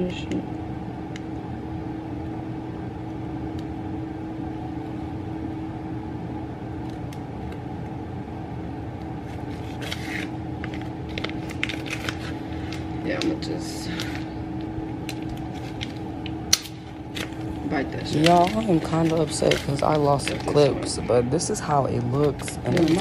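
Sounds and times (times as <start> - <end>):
steady low hum: 0.0 - 23.0
plastic package crinkling: 9.2 - 21.1, 22.1 - 23.0.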